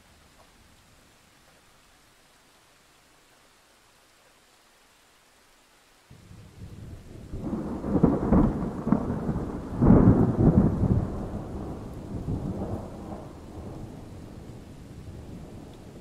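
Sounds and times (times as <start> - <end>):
thunderclap with rolling rumble: 6.2 - 16.0.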